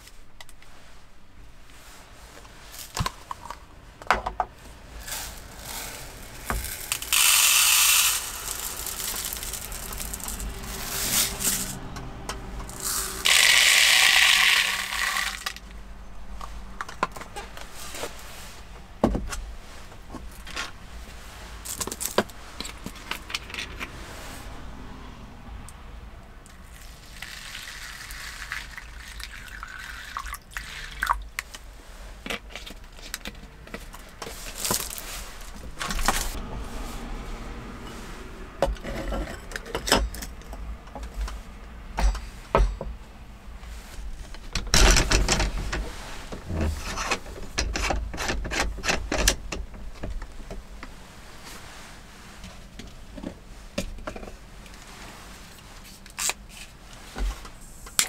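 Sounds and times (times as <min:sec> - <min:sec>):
water pouring onto rice: 0:26.8 - 0:31.2.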